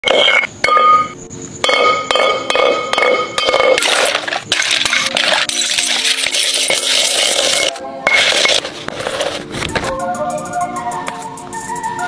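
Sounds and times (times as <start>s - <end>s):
pestle striking ringing glass bottle: 0.0s - 4.0s
shattered glass crunching: 3.5s - 8.7s.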